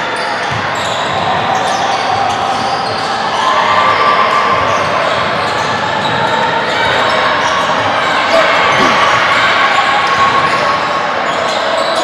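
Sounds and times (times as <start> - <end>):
sneakers squeaking: 4.6 - 10.7
players calling out: 8.1 - 9.6
basketball bouncing on court: 8.7 - 9.2.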